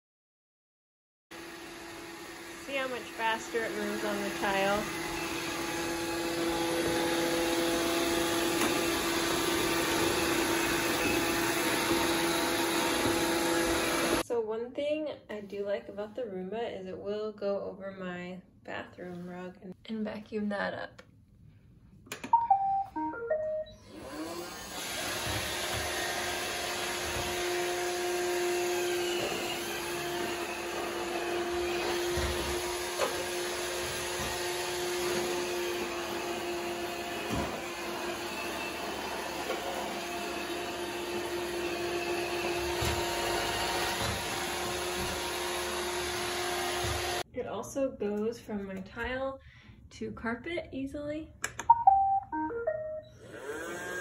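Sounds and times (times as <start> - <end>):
robot vacuum motor humming: 1.4 - 14.2, 23.9 - 47.2, 53.2 - 54.0
button press: 22.1 - 23.8, 51.4 - 53.1
short electronic tones: 22.3 - 23.9, 51.7 - 53.2.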